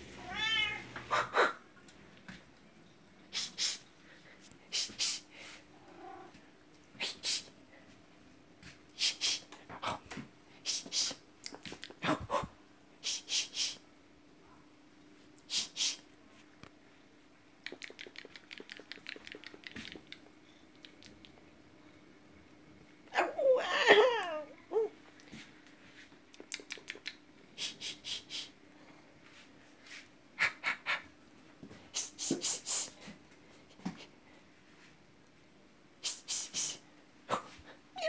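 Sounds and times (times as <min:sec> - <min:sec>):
cat meowing: 0:00.2 - 0:01.3
sniffing puffs: 0:03.3 - 0:05.7, 0:17.7 - 0:21.3, 0:31.9 - 0:33.2.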